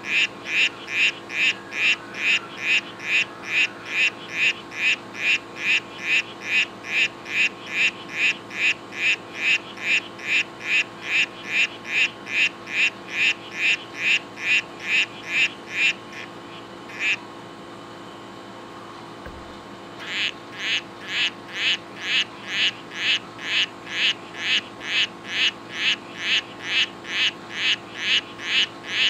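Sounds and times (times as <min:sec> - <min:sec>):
frog chirping: 0:00.0 - 0:17.2, 0:20.0 - 0:29.0.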